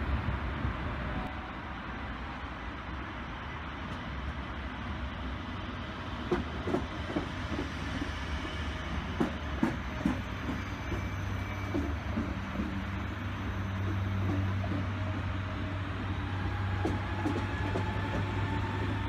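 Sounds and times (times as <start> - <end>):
electric train rumbling: 0.0 - 19.0
train wheels clacking on track: 5.9 - 19.0.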